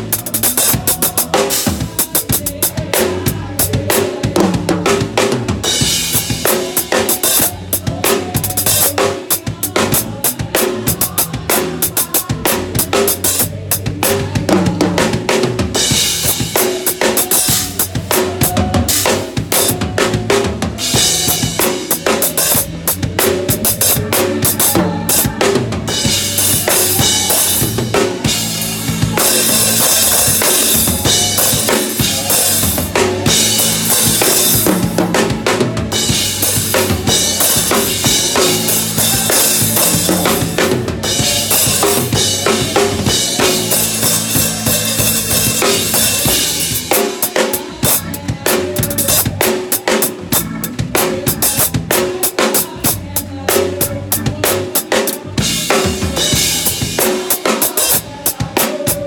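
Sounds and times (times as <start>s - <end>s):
drum kit played hard: 0.0s - 59.0s
gospel backing track: 0.0s - 59.0s
crash and ride cymbals: 20.4s - 48.2s.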